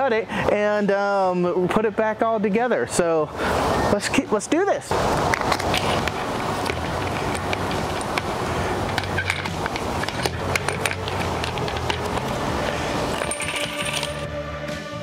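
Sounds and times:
steady background hum: 0.0 - 15.0
wire and plastic clicks and scrapes: 5.2 - 12.4.

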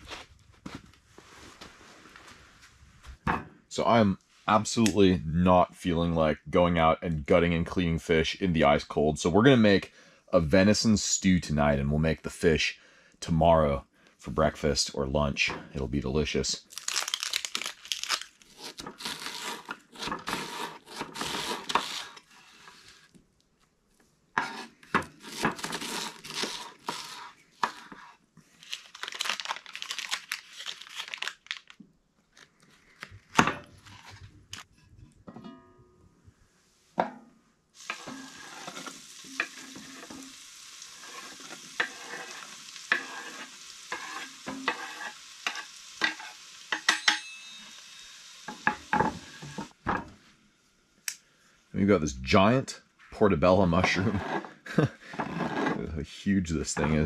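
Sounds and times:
butter and onion sizzling: 16.7 - 22.8, 24.4 - 31.4, 37.8 - 49.8
fork scraping a pot: 19.0 - 23.0, 24.4 - 28.2, 37.8 - 40.4, 41.0 - 46.4, 53.9 - 55.9.

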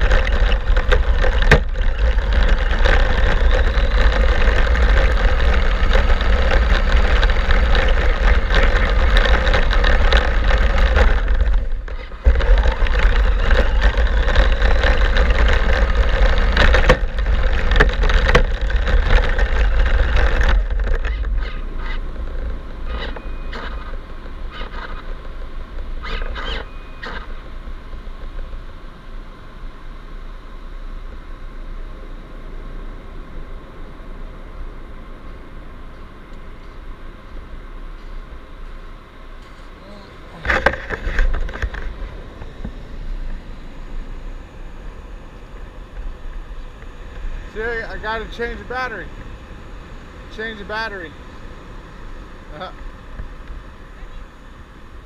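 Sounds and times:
toy truck motor whine: 0.0 - 22.0.

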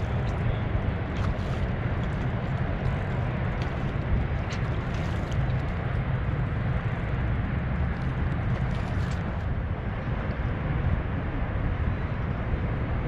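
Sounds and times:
wind buffeting microphone: 0.0 - 13.0.

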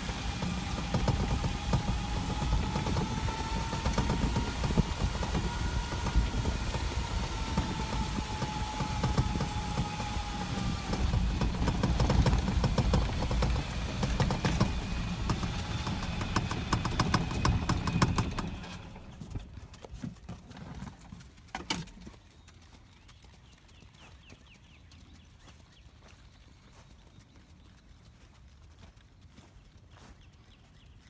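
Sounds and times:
vehicle rumble: 0.0 - 22.0
horse hoofbeats on dirt: 0.0 - 31.0.

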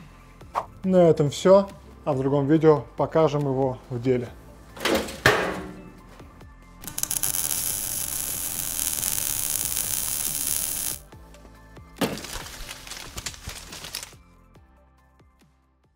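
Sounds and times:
music: 0.0 - 15.9
loud steady hiss: 6.8 - 11.1.

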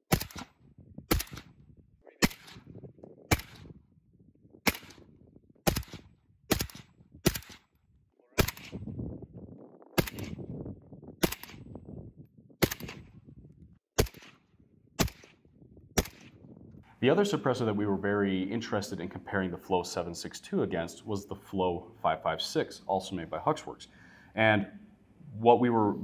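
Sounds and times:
suppressed rifle shots: 0.1 - 1.6, 2.2 - 2.7, 3.3 - 3.7, 4.6 - 7.8, 8.4 - 8.9, 10.0 - 10.5, 11.2 - 11.8, 12.6 - 13.2, 14.0 - 16.4.

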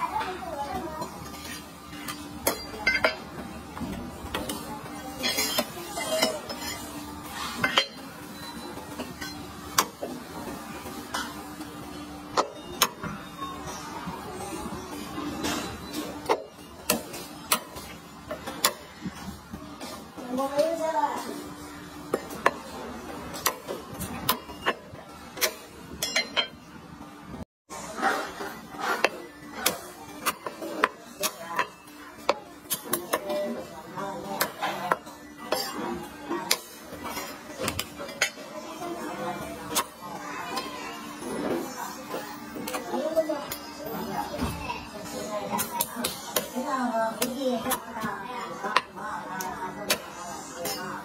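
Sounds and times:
metal utensils clinking: 25.4 - 26.6.

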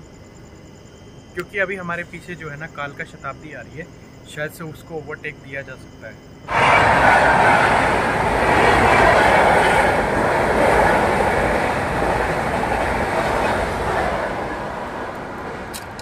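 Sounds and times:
train wheels rushing on rails: 6.5 - 16.0.

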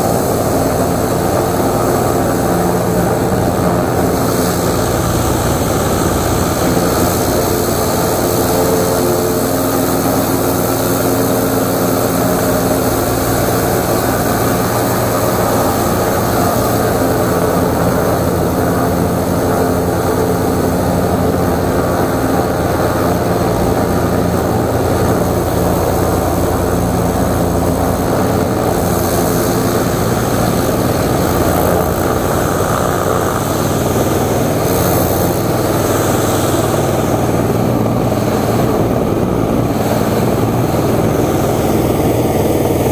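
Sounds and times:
pressure washer engine drone: 0.0 - 42.9.

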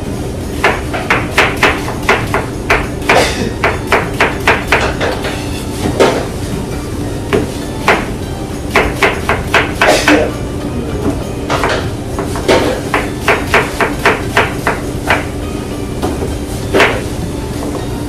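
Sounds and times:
knocks on cutting board: 16.8 - 17.0.

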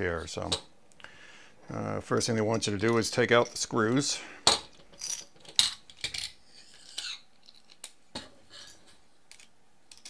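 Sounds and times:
plastic parts clicking and clattering: 4.4 - 10.0.

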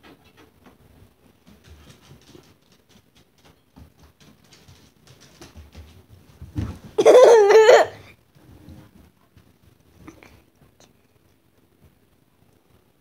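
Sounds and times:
dog paws pattering on floor: 0.0 - 7.7, 8.3 - 12.0.

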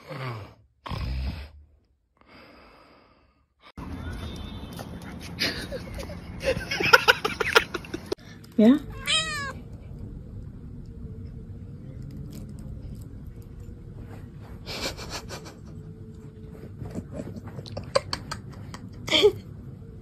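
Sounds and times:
low steady hum: 5.4 - 20.0.

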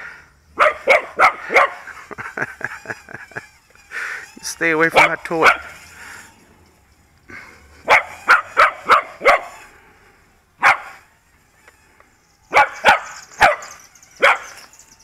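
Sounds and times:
dog barking: 0.6 - 1.8, 4.9 - 5.7, 7.9 - 9.6, 10.6 - 11.0, 12.5 - 14.5.

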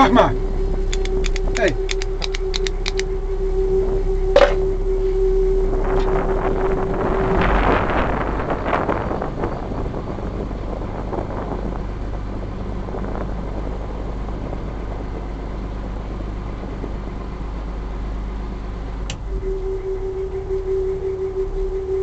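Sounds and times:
steady single-pitched tone: 0.0 - 10.6, 18.6 - 22.0
boat engine running: 0.0 - 22.0
wind noise on microphone: 0.0 - 22.0
sharp click: 0.9 - 3.1.

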